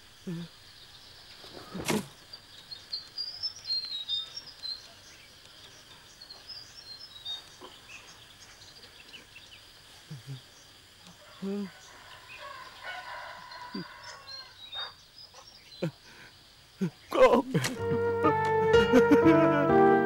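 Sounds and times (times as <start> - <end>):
small birds chirping: 0.0 - 17.8
faint high outdoor hiss: 0.0 - 20.0.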